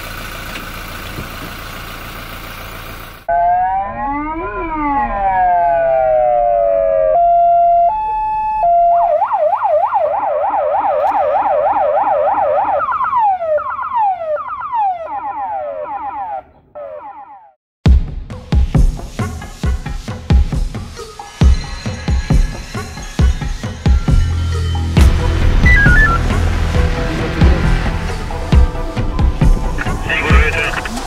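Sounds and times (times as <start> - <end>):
electronic police siren: 3.3 - 17.6, 25.6 - 26.4.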